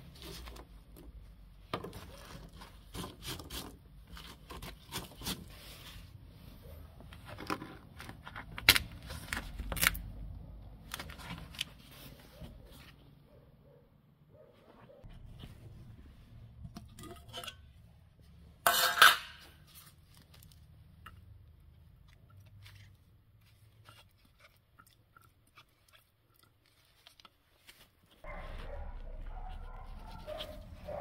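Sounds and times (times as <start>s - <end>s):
faint clicks and scrapes: 14.4s - 31.0s
metal tin lid clattering: 16.8s - 17.8s, 18.6s - 19.6s.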